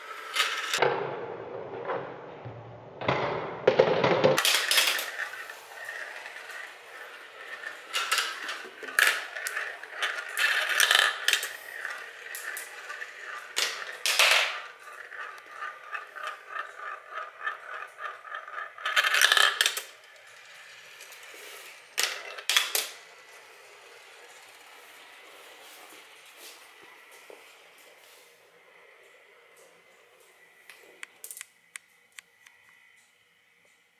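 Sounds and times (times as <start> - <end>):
marbles clattering on plastic track: 0.1 - 0.8, 3.7 - 26.1
marble elevator ticking: 4.4 - 25.2.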